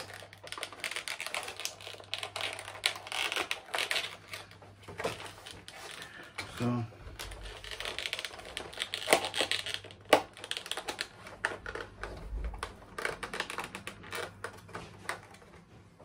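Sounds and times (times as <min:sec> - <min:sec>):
plastic packaging handled: 0:00.0 - 0:15.7.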